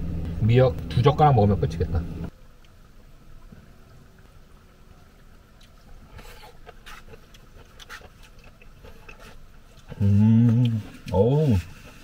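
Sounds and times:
person chewing: 5.6s - 11.1s.

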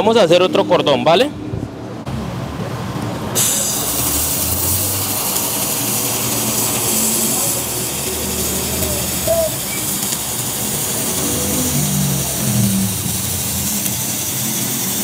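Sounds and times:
laser welder hissing: 3.4s - 15.0s.

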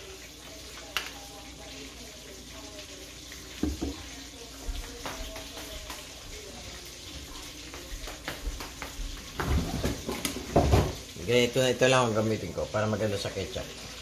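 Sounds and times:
object set down with knock: 9.4s - 11.0s.

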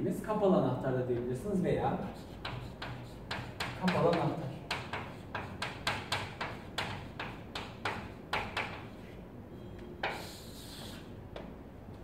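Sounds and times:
chalk writing on chalkboard: 2.0s - 9.2s, 10.0s - 11.2s.

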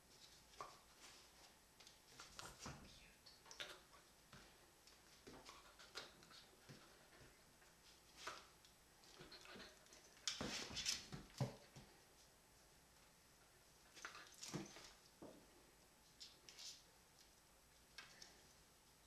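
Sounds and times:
animals pawing rustles and taps: 0.1s - 12.0s, 14.0s - 15.5s.

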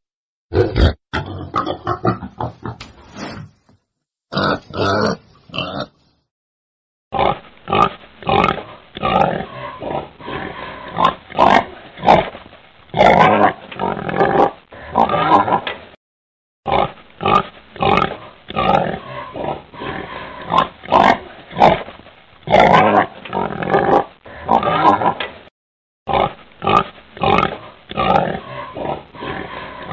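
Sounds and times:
wild boar grunting: 16.7s - 21.9s, 26.1s - 29.9s.

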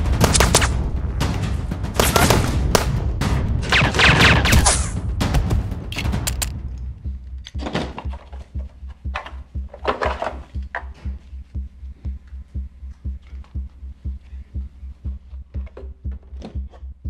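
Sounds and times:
low bass pulse: 0.0s - 7.6s, 10.6s - 16.2s
gunfire burst: 0.1s - 0.8s, 2.0s - 3.0s.

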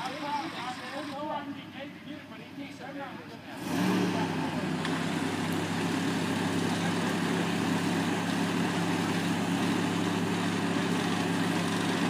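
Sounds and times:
truck engine droning: 3.2s - 12.0s.

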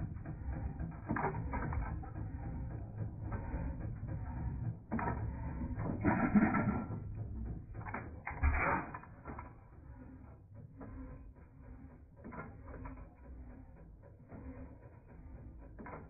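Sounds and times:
engine bursts: 0.0s - 10.2s
stationary gas engine running: 0.0s - 16.0s.

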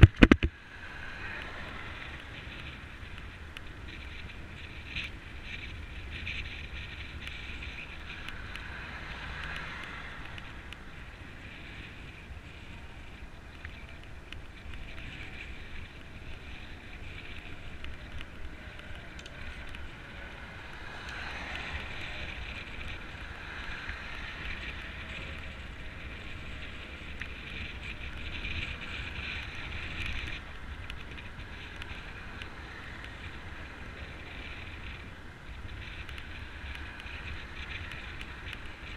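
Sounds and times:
wind rumbling on microphone: 0.0s - 38.9s
passing traffic hiss: 17.4s - 28.5s.

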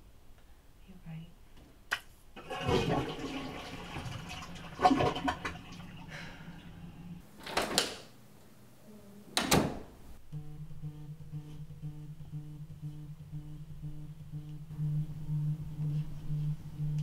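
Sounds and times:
toilet flushing: 2.4s - 7.2s.

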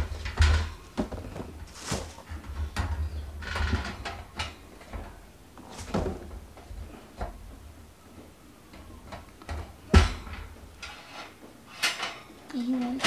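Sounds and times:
grill grate knocking and rattling: 0.0s - 7.6s, 8.7s - 13.0s.

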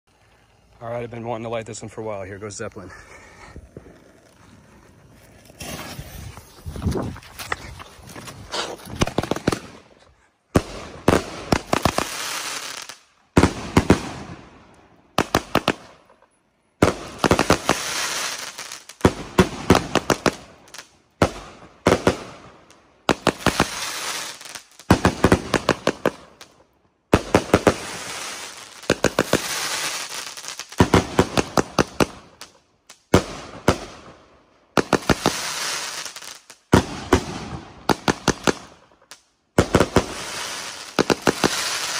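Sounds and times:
firework cake shots popping and crackling: 8.4s - 14.4s, 16.8s - 41.9s.

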